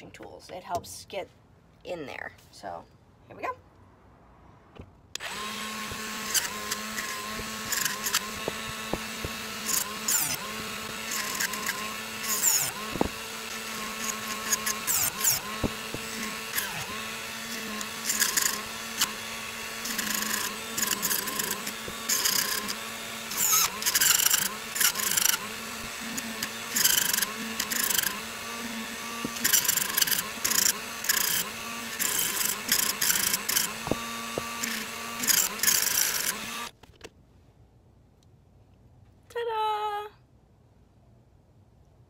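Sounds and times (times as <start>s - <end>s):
bit grinding metal: 5.2s - 36.7s
rotary tool motor running: 5.2s - 36.8s.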